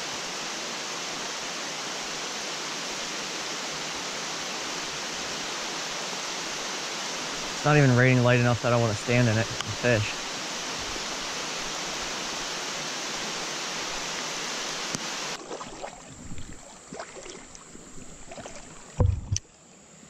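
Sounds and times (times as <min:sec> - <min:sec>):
heavy rain: 0:00.0 - 0:15.4
creek water splashing: 0:03.8 - 0:19.5
loud thump: 0:19.0 - 0:19.4.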